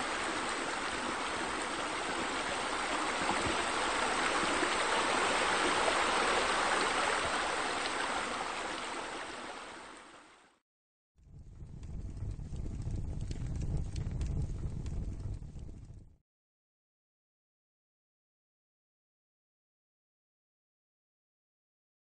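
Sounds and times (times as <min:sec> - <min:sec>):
running water rushing: 0:00.0 - 0:10.6.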